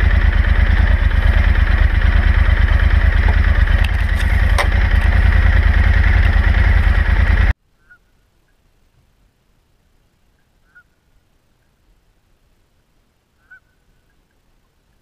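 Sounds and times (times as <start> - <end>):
motorcycle engine running: 0.0 - 7.6.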